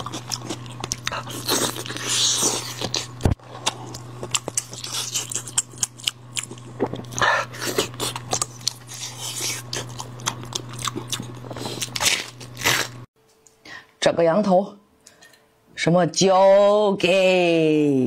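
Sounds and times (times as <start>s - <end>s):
crunching and wet chewing: 0.0s - 13.1s
steady low hum: 0.0s - 16.2s.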